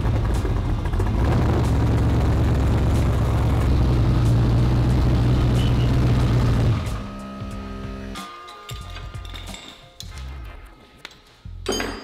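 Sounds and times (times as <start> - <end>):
buggy engine idling: 0.0 - 7.0.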